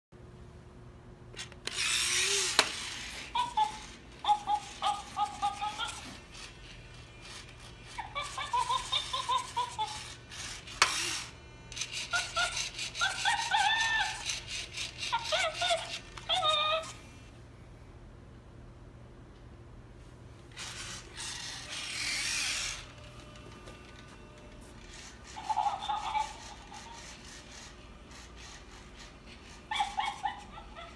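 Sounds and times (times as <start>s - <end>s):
toy motors whirring: 1.3s - 17.3s, 20.5s - 30.9s
electronic chimp hoots and chattering: 1.8s - 17.0s, 24.8s - 30.9s.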